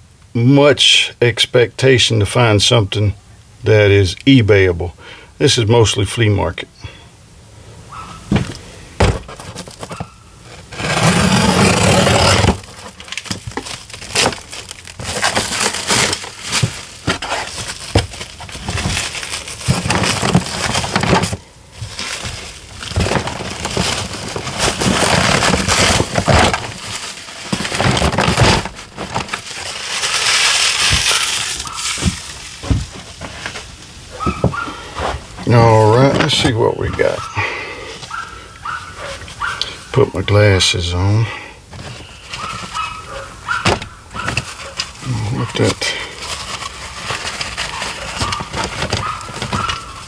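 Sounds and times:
plastic wrap crinkling and tearing: 0:08.4 - 0:34.3, 0:41.7 - 0:50.0.

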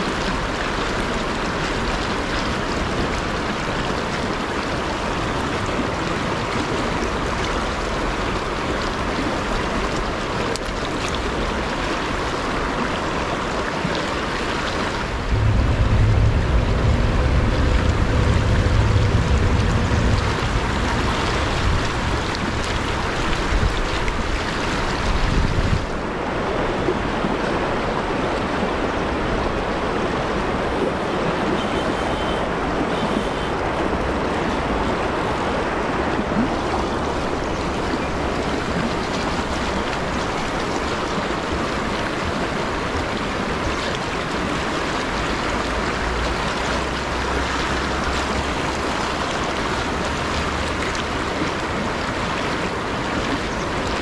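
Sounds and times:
river rushing and splashing: 0:00.0 - 0:54.0
wind on microphone: 0:15.0 - 0:26.0.

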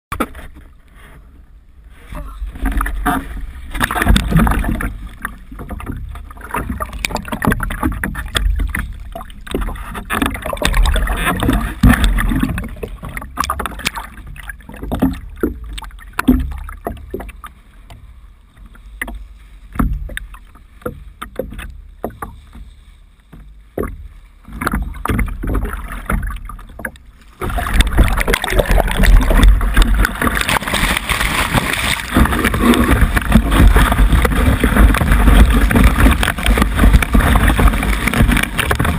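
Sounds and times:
water splashing against board: 0:00.1 - 0:01.2, 0:01.9 - 0:38.9
rush of spray: 0:27.3 - 0:38.9.

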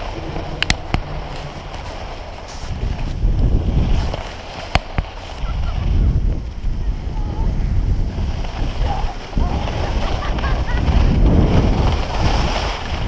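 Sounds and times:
skis hissing on packed snow: 0:00.0 - 0:06.1, 0:08.0 - 0:13.0
wind buffeting microphone: 0:00.0 - 0:13.0.

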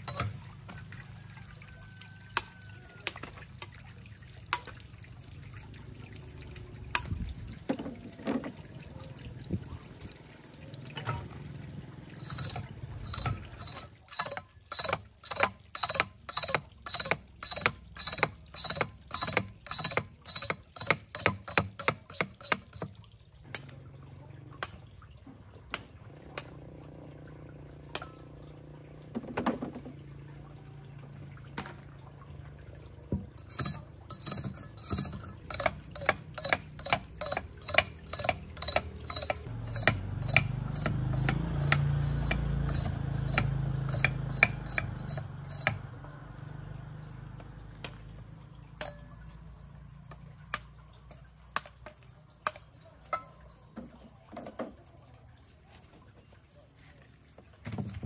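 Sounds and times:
knife striking sugarcane: 0:35.0 - 0:45.8.

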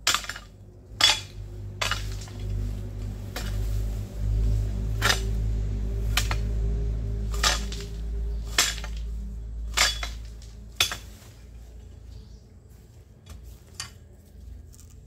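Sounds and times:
hand tool striking ground: 0:00.0 - 0:06.6, 0:07.2 - 0:11.5
steady low hum: 0:00.0 - 0:15.0.

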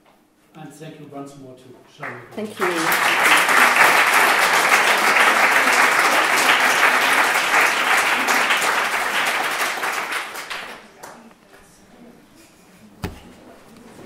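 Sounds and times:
audience applauding: 0:02.0 - 0:11.2.

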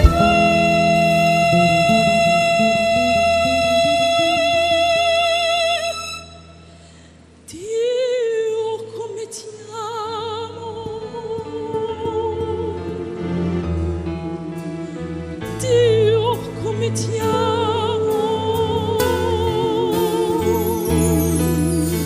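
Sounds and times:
live band accompaniment: 0:00.0 - 0:04.4, 0:13.1 - 0:22.0
woman singing with vibrato: 0:00.0 - 0:06.6, 0:07.5 - 0:13.9, 0:15.4 - 0:22.0.

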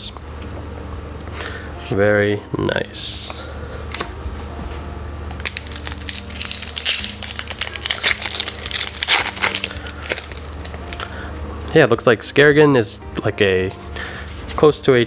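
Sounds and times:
foil wrapper crinkling: 0:05.4 - 0:11.1.

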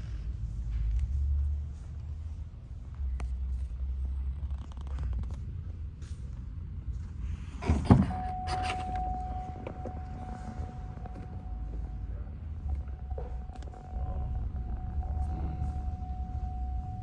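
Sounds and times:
steady high tone: 0:08.0 - 0:17.0
low rumble: 0:08.1 - 0:17.0.

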